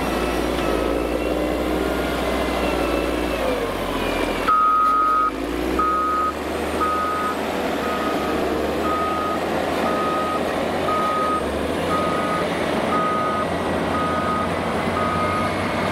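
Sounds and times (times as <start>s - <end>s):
diesel engine running: 0.0s - 15.9s
backup alarm beeping: 4.5s - 15.5s.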